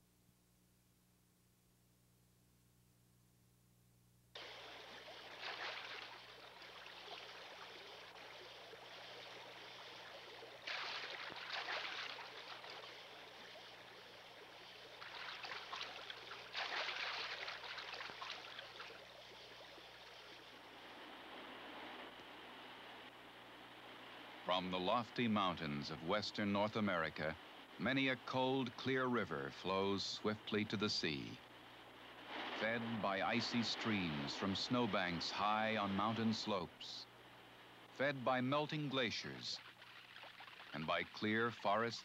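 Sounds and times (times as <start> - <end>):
stream water rushing: 4.4 - 23.1, 24.0 - 37.3.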